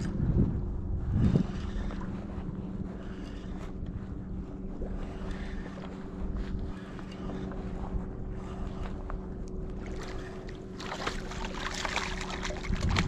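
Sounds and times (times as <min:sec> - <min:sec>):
steady low hum: 0:00.0 - 0:13.0
fish splashing at surface: 0:09.9 - 0:13.0.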